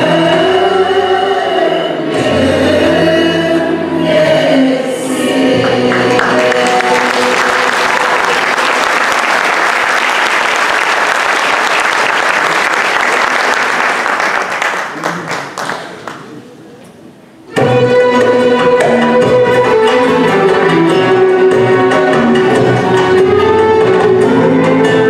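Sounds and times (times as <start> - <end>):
choir singing with strings: 0.0 - 8.8
audience applauding: 5.6 - 16.4.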